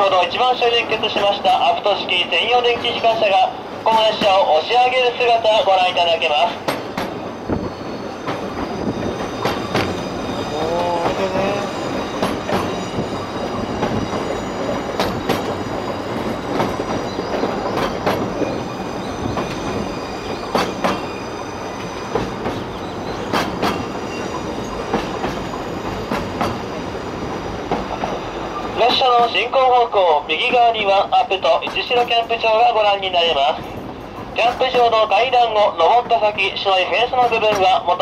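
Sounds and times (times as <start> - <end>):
train wheels rumbling on rail: 0.0 - 38.0
sharp rail clicks: 6.6 - 7.2, 11.0 - 13.1, 13.7 - 18.6, 19.3 - 21.1, 21.8 - 24.0, 34.3 - 35.3.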